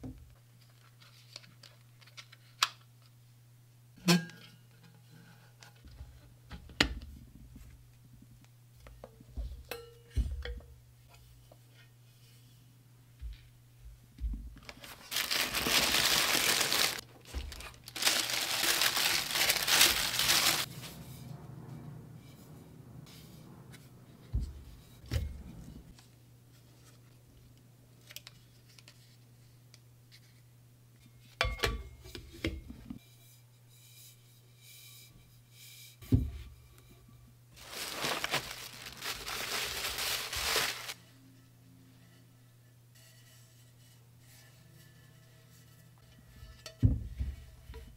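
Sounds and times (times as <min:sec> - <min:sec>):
packaging crinkling: 0:14.6 - 0:20.7, 0:37.6 - 0:41.0
steady low hum: 0:19.5 - 0:27.9.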